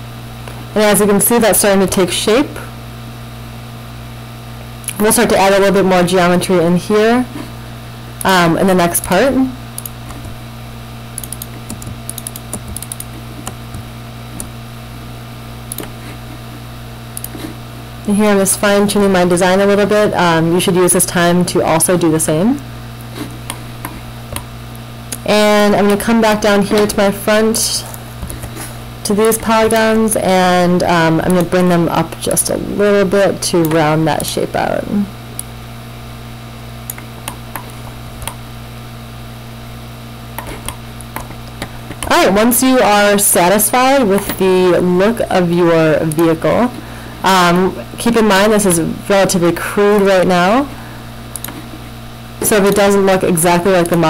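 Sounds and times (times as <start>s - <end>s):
low electrical hum: 0.0s - 54.0s
computer mouse and keyboard clicking: 9.8s - 10.4s, 11.2s - 14.5s, 15.7s - 16.0s, 17.2s - 17.5s, 28.2s - 28.6s, 40.4s - 42.1s, 51.3s - 51.7s.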